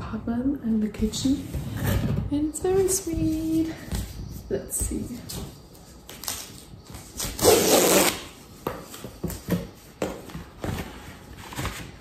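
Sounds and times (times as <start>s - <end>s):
paper rustling and crinkling: 8.8s - 12.0s.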